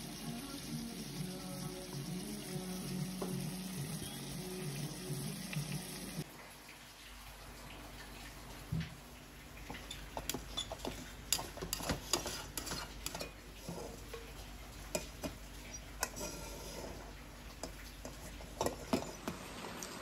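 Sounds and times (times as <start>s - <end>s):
utensils and dishes clinking: 9.7s - 20.0s.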